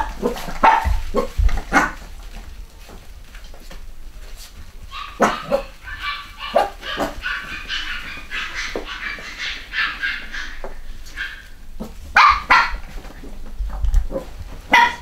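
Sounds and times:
puppies yapping: 0:00.0 - 0:15.0
puppies whining and squealing: 0:04.8 - 0:13.2.

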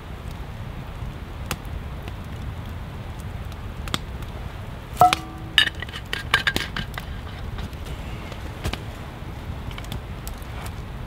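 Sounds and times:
campfire crackling and popping: 0:00.0 - 0:11.0
metal cups clinking: 0:05.0 - 0:06.6.

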